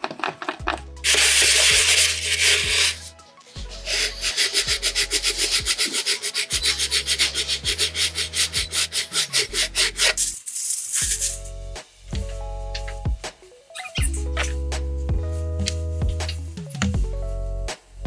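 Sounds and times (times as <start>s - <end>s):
sanding sponge rasping: 1.0s - 11.4s.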